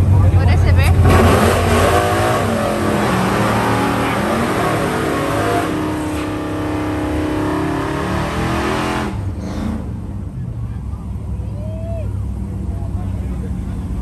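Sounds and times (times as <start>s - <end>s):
racing engine accelerating: 0.5s - 10.1s.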